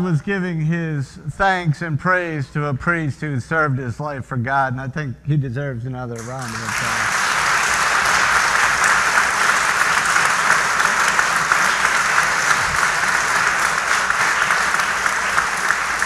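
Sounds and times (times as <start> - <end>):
crowd applauding: 6.2 - 16.0.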